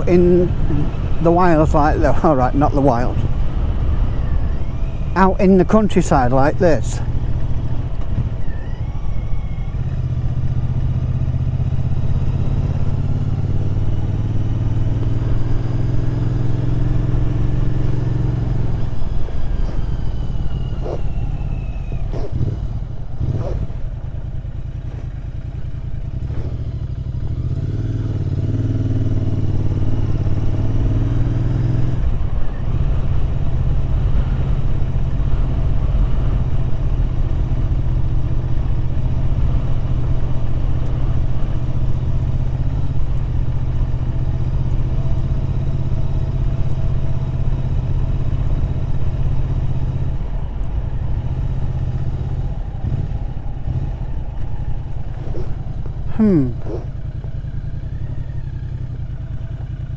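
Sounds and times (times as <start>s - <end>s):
motorcycle engine running: 6.7s - 59.9s.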